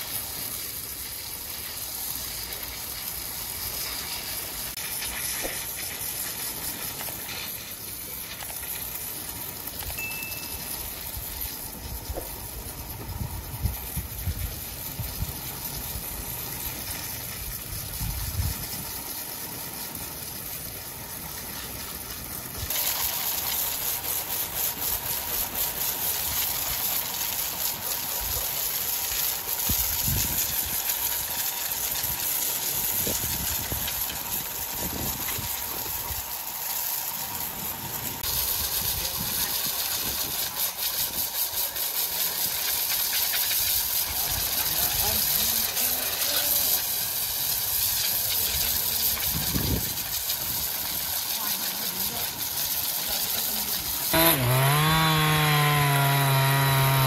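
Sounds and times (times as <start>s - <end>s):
wood-sawing machinery hissing: 0.0s - 57.0s.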